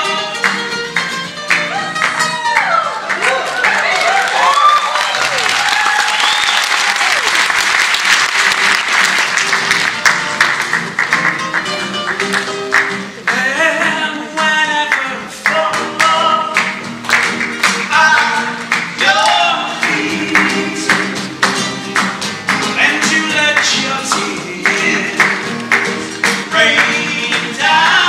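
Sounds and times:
nylon-string guitar: 0.0s - 2.8s, 8.5s - 28.0s
rhythmic hand clapping: 0.0s - 28.0s
audience applause: 1.5s - 13.4s
men singing: 13.3s - 16.7s, 17.8s - 21.8s, 22.7s - 28.0s.

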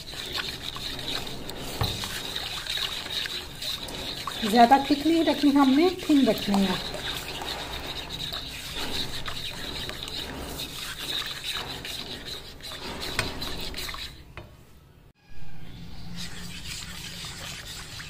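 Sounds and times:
whisk sloshing in sauce: 0.0s - 14.4s, 16.2s - 18.0s
whisk scraping a pan: 0.0s - 14.5s, 15.9s - 18.0s.

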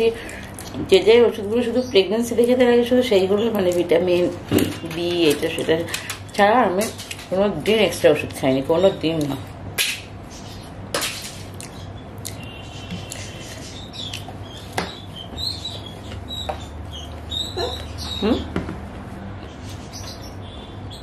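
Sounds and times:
lip and tongue clicks: 11.6s - 14.3s
high squeaky chirps: 11.8s - 18.5s.

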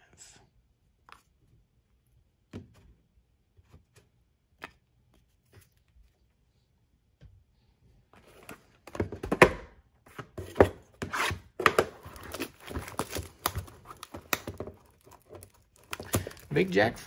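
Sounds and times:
shrink wrap crinkling and tearing: 12.0s - 17.0s.

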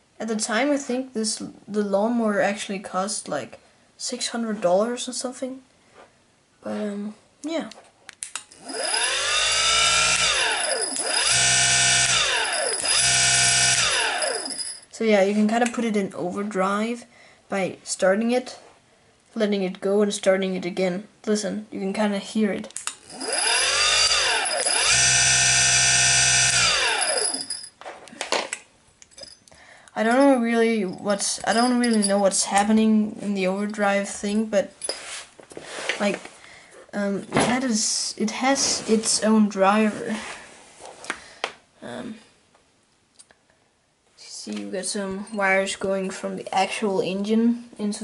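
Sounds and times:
electric motor whining: 8.6s - 14.7s, 23.0s - 27.6s.

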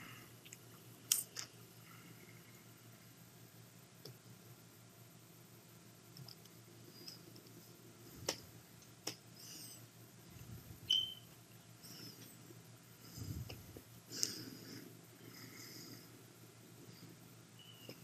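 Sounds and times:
computer mouse clicking: 6.1s - 7.6s.

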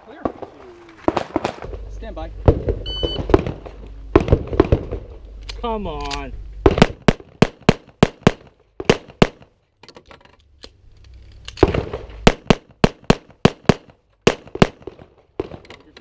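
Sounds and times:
rapid pistol shots: 1.0s - 1.7s, 2.5s - 5.1s, 6.6s - 9.5s, 11.6s - 15.6s.

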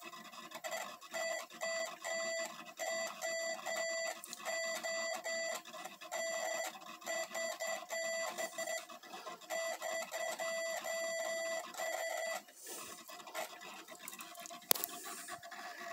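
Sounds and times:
morse code beeps: 1.1s - 12.5s
scratchy rustle: 12.6s - 15.9s.

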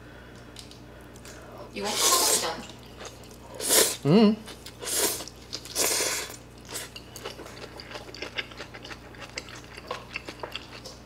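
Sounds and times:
slurping noodles: 3.6s - 4.0s
close-up wet chewing: 4.5s - 11.0s.

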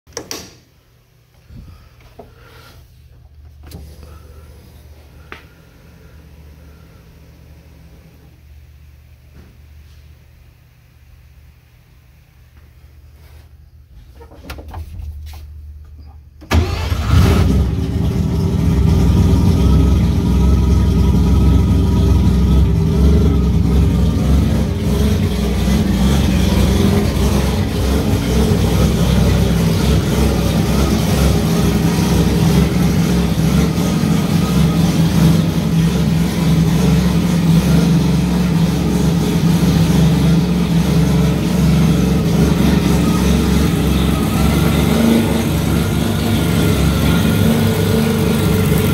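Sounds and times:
rotary engine starting and idling: 16.4s - 48.9s.

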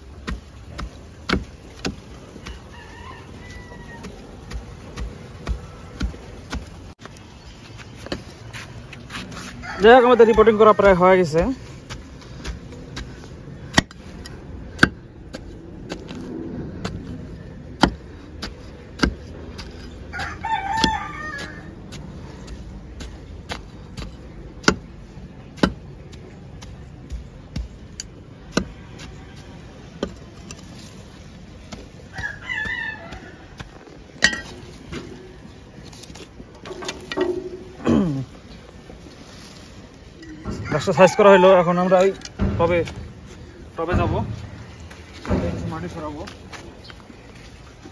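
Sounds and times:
rooster crowing: 2.5s - 4.3s, 9.5s - 10.9s, 20.1s - 21.7s, 32.1s - 33.8s, 40.2s - 42.4s.

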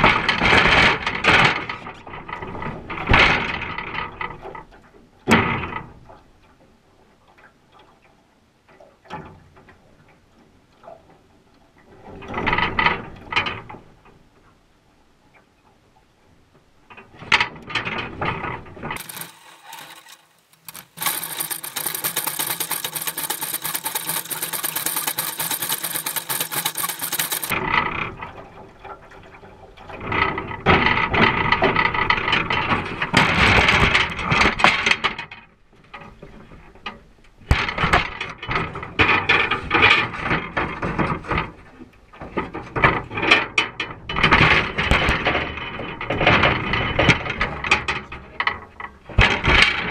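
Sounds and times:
oars clacking and creaking: 16.9s - 49.9s
wire pot rattling: 19.0s - 27.6s.

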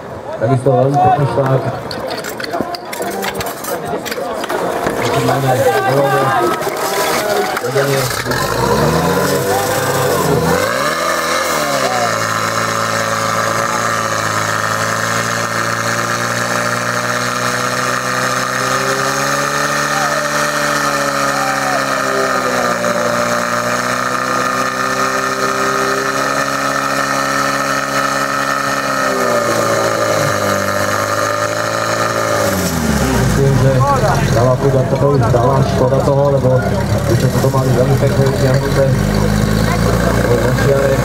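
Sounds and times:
pump engine running at high revs: 3.1s - 41.0s.

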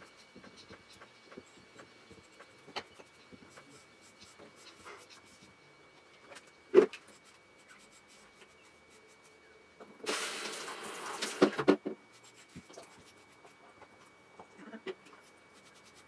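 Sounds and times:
shower head spraying water: 10.0s - 11.5s.

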